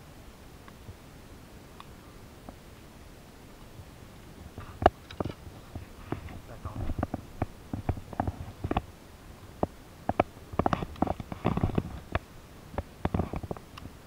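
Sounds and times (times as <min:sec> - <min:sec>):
handling noise clicks and knocks: 0:04.6 - 0:08.9, 0:09.6 - 0:14.0.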